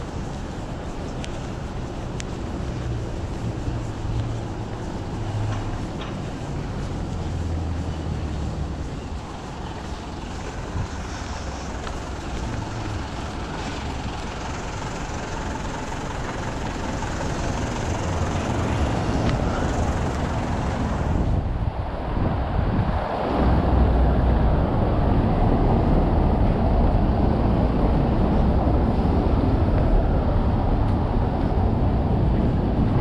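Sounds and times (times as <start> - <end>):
vehicle engine humming: 0.0 - 21.7
street noise: 0.0 - 33.0.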